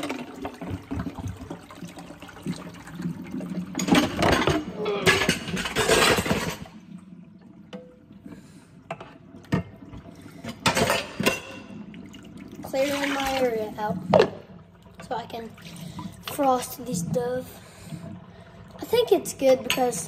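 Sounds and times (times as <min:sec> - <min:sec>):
tap water running into pot: 0:00.0 - 0:06.9, 0:08.9 - 0:17.0.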